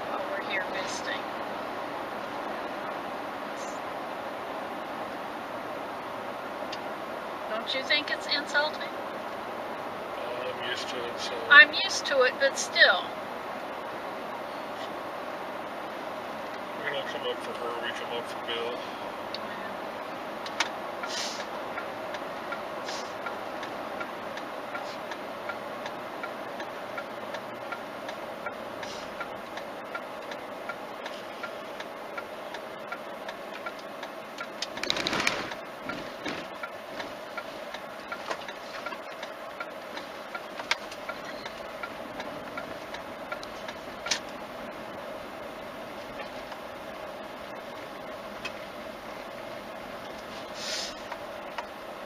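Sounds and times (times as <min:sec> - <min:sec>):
car engine and road noise: 0:00.0 - 0:52.0
light regular ticking: 0:16.3 - 0:50.3
brief rush of air: 0:21.1 - 0:21.5, 0:50.4 - 0:51.1.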